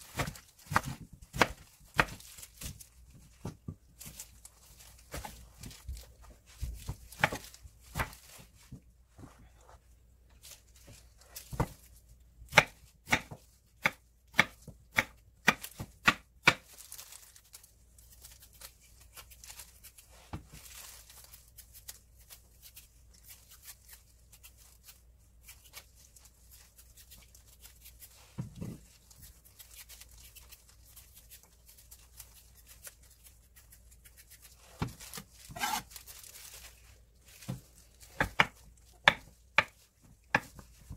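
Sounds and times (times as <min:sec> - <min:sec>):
knife chopping on wooden board: 0:00.1 - 0:02.2, 0:07.1 - 0:08.2, 0:12.5 - 0:16.6, 0:34.8 - 0:35.8, 0:37.5 - 0:40.6.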